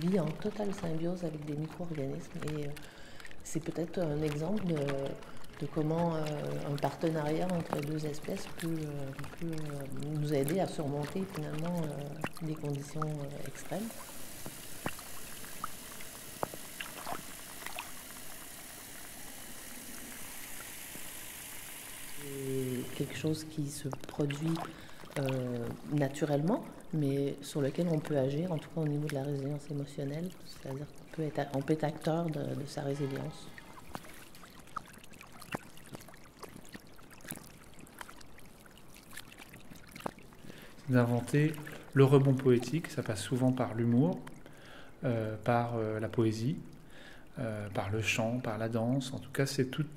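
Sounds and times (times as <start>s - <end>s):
bubbling pops and clicks: 0.0s - 21.3s, 22.2s - 38.3s
steady underwater hiss: 4.8s - 34.4s
watery hiss: 13.7s - 23.3s
small clicks and pops: 14.4s - 18.4s.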